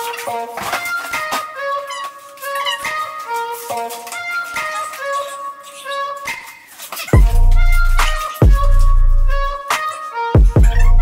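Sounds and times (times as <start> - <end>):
background music with bass drum: 7.0 - 11.0.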